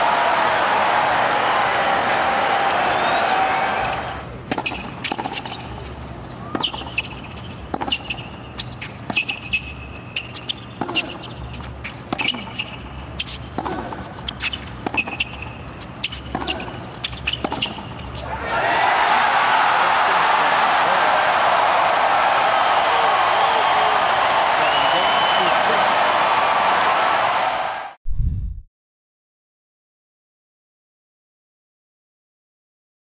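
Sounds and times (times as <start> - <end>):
crowd cheering and applauding: 0.0 - 4.3, 18.2 - 28.0
sneakers squeaking on court: 3.9 - 18.2
tennis ball struck by racquets: 4.5 - 5.7, 6.5 - 9.6, 10.2 - 18.1.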